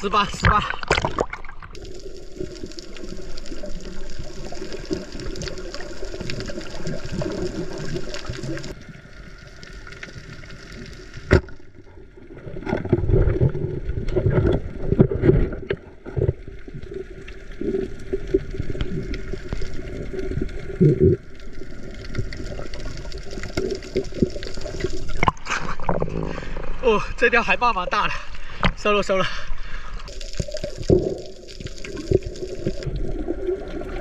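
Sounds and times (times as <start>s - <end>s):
water sloshing and hissing: 0.6s - 8.8s.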